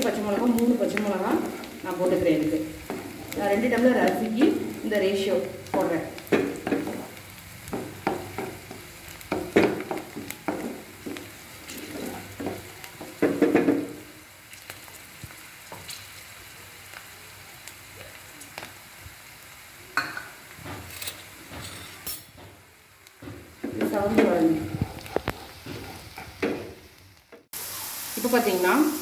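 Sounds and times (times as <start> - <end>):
spoon stirring and scraping pan: 0.0 - 16.1, 20.0 - 22.6, 23.2 - 27.0
onions sizzling in oil: 0.0 - 29.0.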